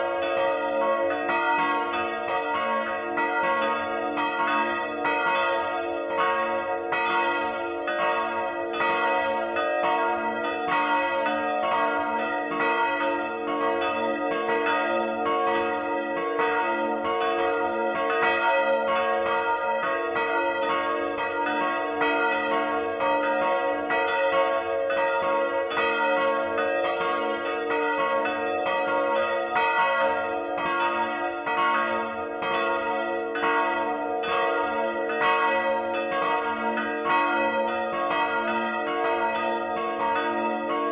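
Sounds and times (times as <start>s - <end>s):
church bells pealing: 0.0s - 40.9s.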